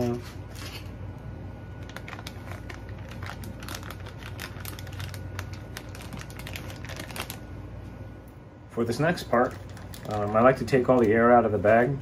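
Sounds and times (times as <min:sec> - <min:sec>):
low steady hum: 0:00.0 - 0:12.0
plastic bag crinkling: 0:01.7 - 0:07.5, 0:09.2 - 0:11.9.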